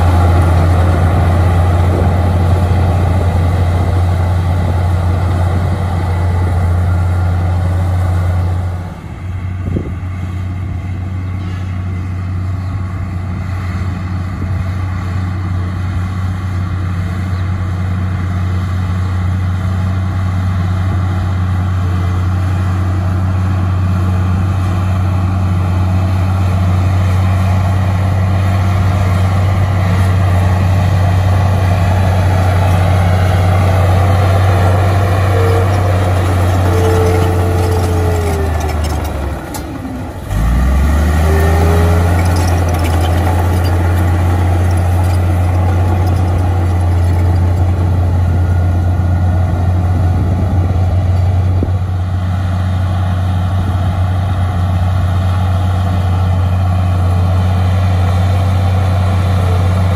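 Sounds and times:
bulldozer diesel engine under load: 0:00.0 - 0:59.9.

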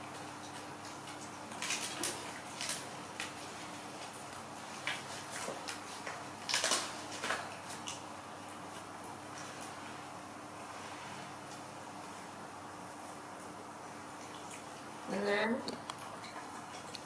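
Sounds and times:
monkeys crunching leafy greens: 0:00.0 - 0:09.8
faint steady hum: 0:00.0 - 0:17.0.

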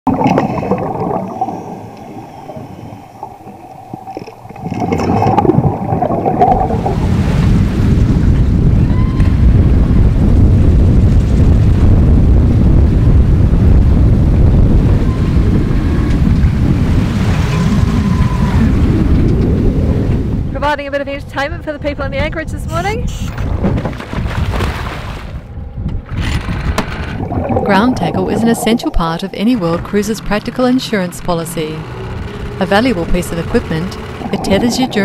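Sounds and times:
waves breaking: 0:00.1 - 0:10.4, 0:14.8 - 0:20.6, 0:23.8 - 0:25.5, 0:26.4 - 0:35.0
underwater humming tones: 0:00.1 - 0:20.6, 0:25.5 - 0:35.0
wind buffeting microphone: 0:00.1 - 0:35.0.

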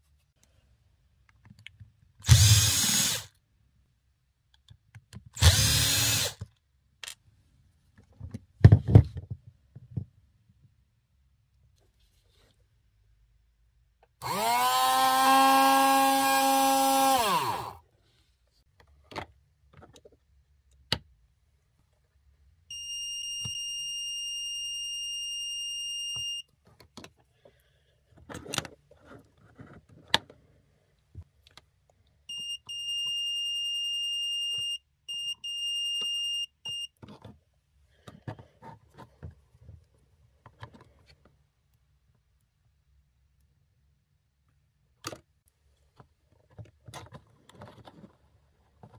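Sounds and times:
small electric motor whining: 0:02.3 - 0:03.3, 0:05.4 - 0:06.4, 0:14.2 - 0:17.8
multimeter continuity beeps: 0:22.7 - 0:26.5, 0:32.3 - 0:37.0.

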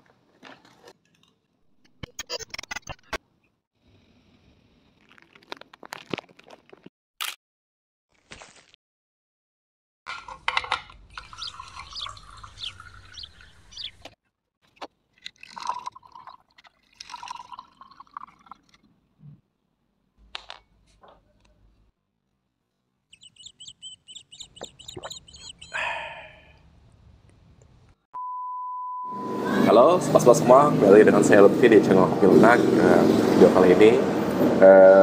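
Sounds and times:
high chirps: 0:11.2 - 0:14.0, 0:23.1 - 0:26.3.

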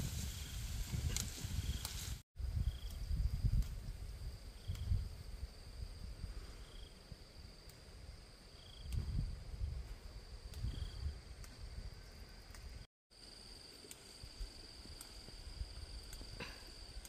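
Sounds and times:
short insect chirp: 0:01.6 - 0:09.4.

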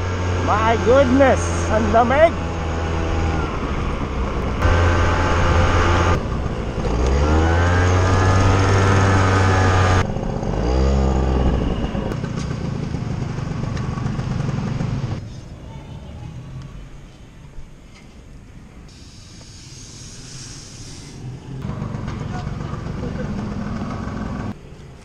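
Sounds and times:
road and wind noise: 0:00.0 - 0:25.0
motorcycle engine running: 0:01.5 - 0:15.2, 0:21.6 - 0:24.6.

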